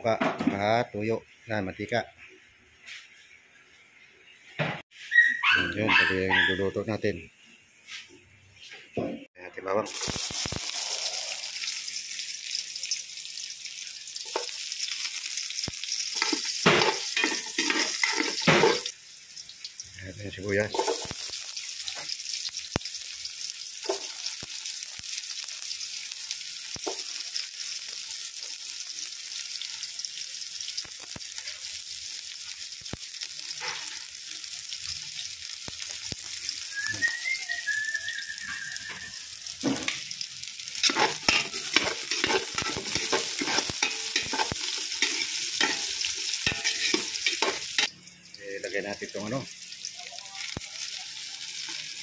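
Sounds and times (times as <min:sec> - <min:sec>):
onion and garlic sizzling in oil: 0:09.8 - 0:52.0
metal spoon scraping a pot: 0:16.2 - 0:18.9, 0:40.8 - 0:47.9.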